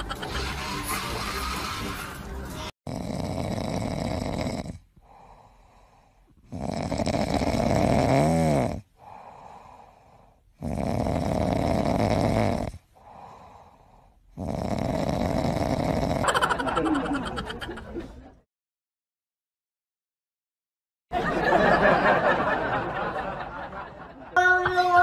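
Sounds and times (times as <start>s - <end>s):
cat snoring: 2.9s - 9.3s, 10.5s - 13.6s, 14.3s - 16.2s
cat breathing: 5.0s - 6.4s, 9.0s - 10.6s, 13.0s - 14.3s.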